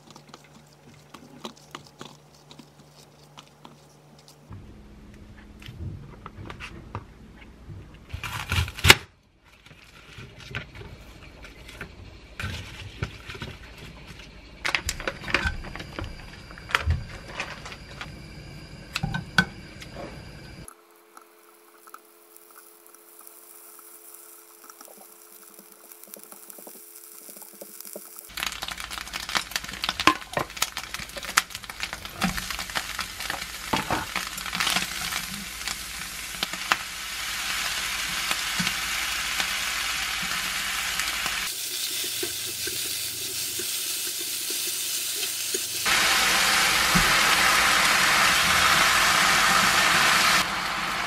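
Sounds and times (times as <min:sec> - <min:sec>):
faint steady hum: 0:09.1 - 0:41.5.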